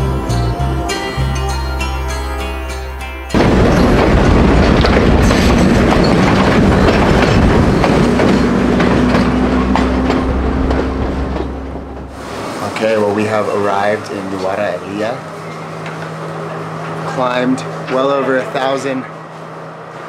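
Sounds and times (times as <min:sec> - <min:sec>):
train carriages rattling: 0:03.3 - 0:19.3.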